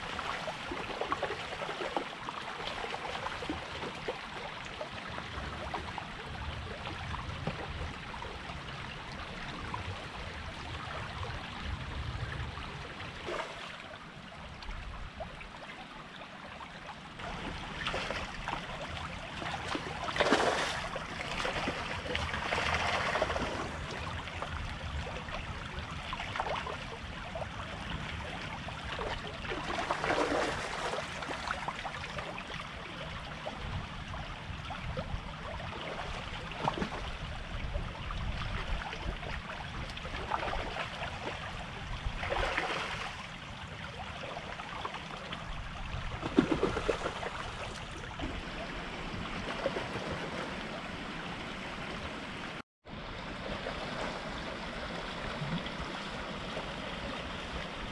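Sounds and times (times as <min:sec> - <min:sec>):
creek water babbling over gravel: 0:12.7 - 0:33.2.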